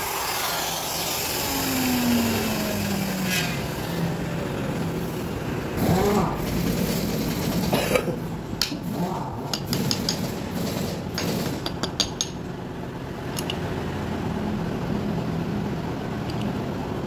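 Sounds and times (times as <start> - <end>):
steady low hum: 0.0 - 9.6.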